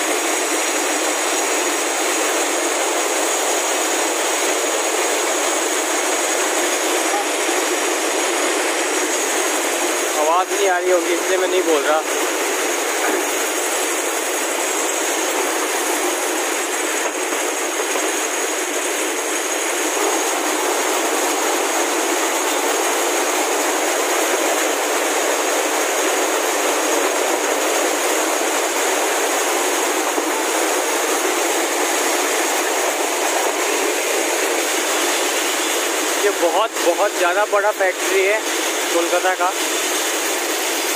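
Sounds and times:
textile machinery clattering: 0:03.2 - 0:40.9
thin high machine whine: 0:06.7 - 0:09.3.

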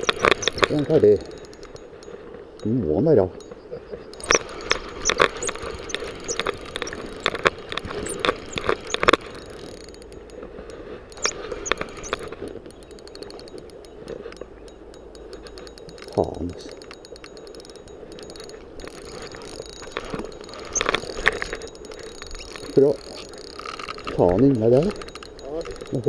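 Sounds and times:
fishing reel ticking and rattling: 0:00.0 - 0:26.0.

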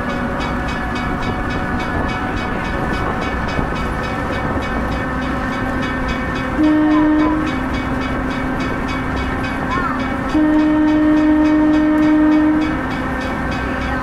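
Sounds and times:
train running rhythmically: 0:00.0 - 0:14.0
train horn blast: 0:06.4 - 0:08.2, 0:09.3 - 0:14.0.

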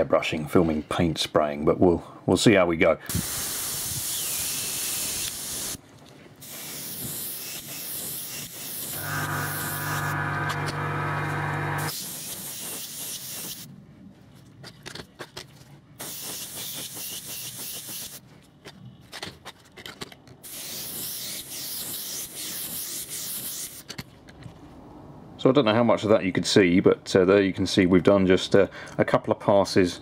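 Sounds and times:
airbrush spraying hiss: 0:03.1 - 0:05.8, 0:06.4 - 0:10.2, 0:11.8 - 0:13.7, 0:16.0 - 0:18.2, 0:20.5 - 0:23.8
steady hum: 0:08.9 - 0:11.9.

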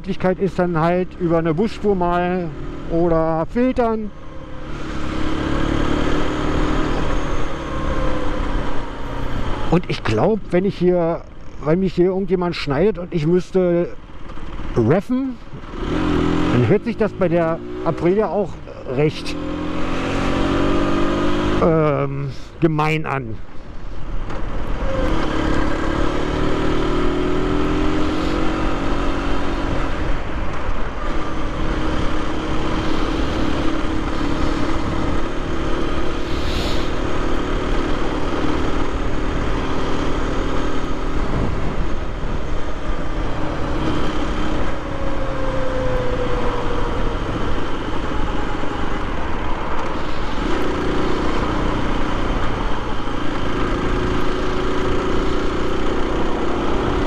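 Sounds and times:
motorcycle engine running: 0:24.9 - 0:44.8, 0:49.9 - 0:57.0
wind rushing: 0:31.4 - 0:38.2.

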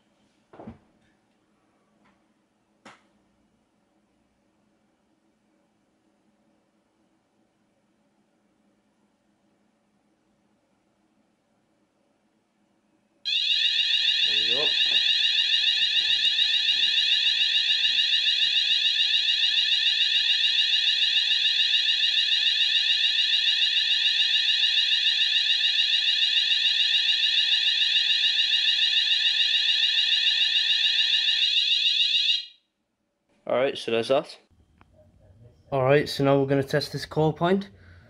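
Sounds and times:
pulsing fire alarm tone: 0:13.3 - 0:32.7.

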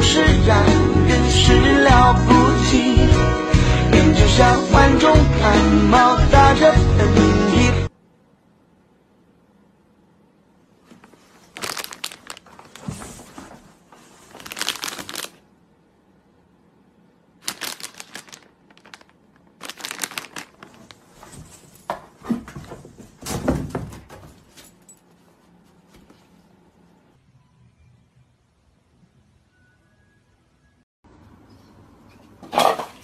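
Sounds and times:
cardboard box crinkling: 0:11.1 - 0:15.4, 0:17.4 - 0:21.4.

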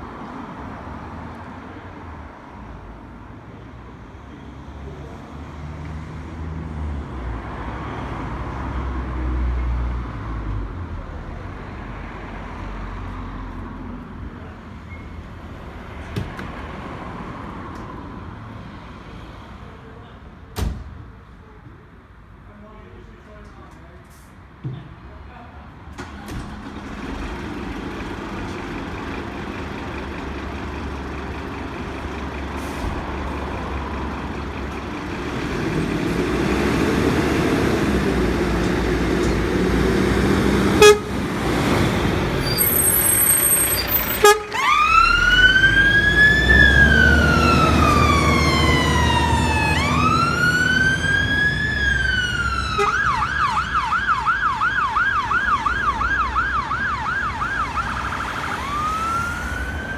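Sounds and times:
diesel engine pulling away: 0:26.0 - 0:59.9
siren wailing and yelping: 0:44.5 - 0:59.9.

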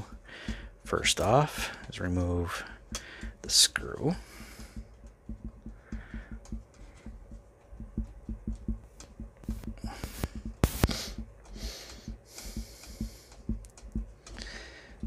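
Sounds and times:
short hissing noises: 0:09.5 - 0:13.1.

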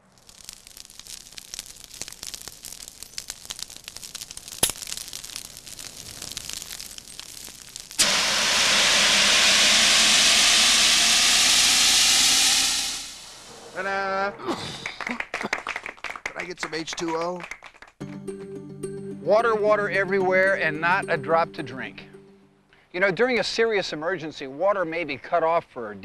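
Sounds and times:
paper fire crackling: 0:00.0 - 0:13.9
fire extinguisher hissing: 0:00.2 - 0:13.9.

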